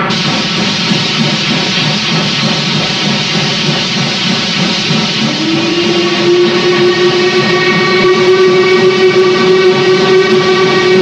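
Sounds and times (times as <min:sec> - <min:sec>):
low rumble of locomotive: 0:00.0 - 0:11.0
steam locomotive whistle blast: 0:05.1 - 0:11.0.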